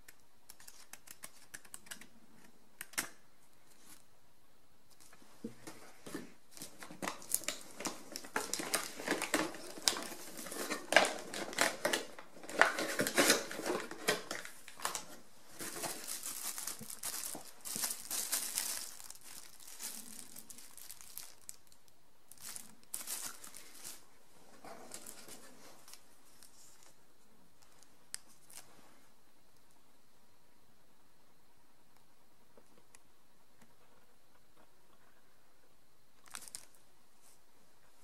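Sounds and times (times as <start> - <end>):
plastic packaging crinkling: 6.5 - 24.2, 24.8 - 27.0, 27.6 - 28.7, 36.2 - 36.8.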